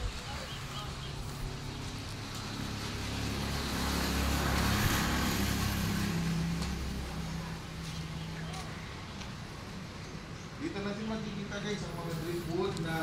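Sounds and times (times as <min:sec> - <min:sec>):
vehicle passing by: 0:00.0 - 0:10.4.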